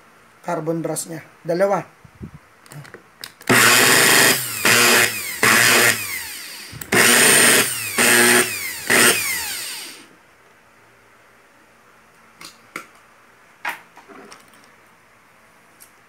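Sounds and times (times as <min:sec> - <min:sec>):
electric drill motor whining: 0:03.5 - 0:10.1.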